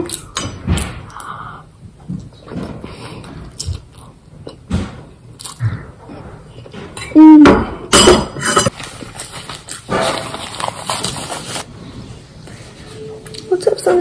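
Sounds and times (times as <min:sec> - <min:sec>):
loud rustling and handling: 0:08.6 - 0:14.0.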